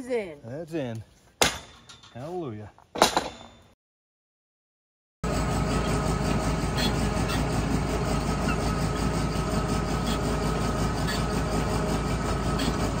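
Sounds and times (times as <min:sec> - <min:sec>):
heavy machine engine running: 0:05.2 - 0:13.0.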